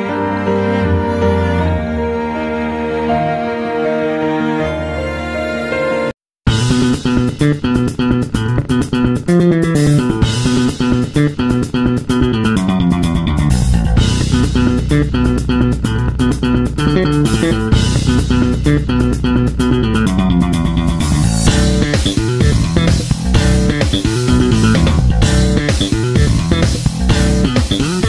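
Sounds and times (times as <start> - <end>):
bass guitar: 6.5 - 28.0
plucked guitar: 6.5 - 28.0
steady beat: 6.5 - 28.0.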